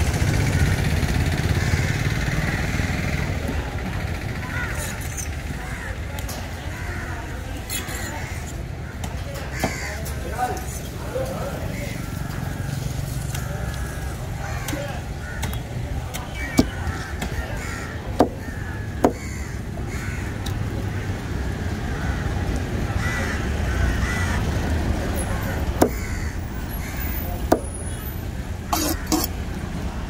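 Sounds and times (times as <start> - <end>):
low hum of traffic: 0.0 - 30.0
crows cawing: 1.4 - 3.0, 4.4 - 5.0, 5.6 - 6.0, 7.9 - 10.2, 11.8 - 15.6, 16.4 - 24.6, 25.2 - 27.6
cleaver chopping on wooden block: 19.0 - 19.2, 25.8 - 26.1, 27.5 - 27.7.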